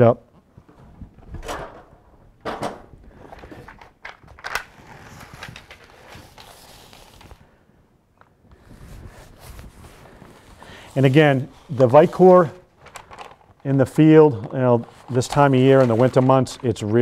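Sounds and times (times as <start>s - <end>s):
paper liner crinkling: 4.4s - 7.5s, 9.2s - 17.0s
tape rustling as rubbed: 4.8s - 7.5s, 8.5s - 13.7s, 14.6s - 17.0s.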